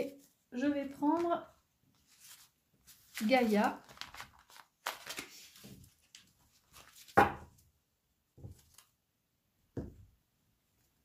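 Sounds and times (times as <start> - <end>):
cards shuffled by hand: 2.0 - 7.2
cards thudding on table: 7.1 - 7.6.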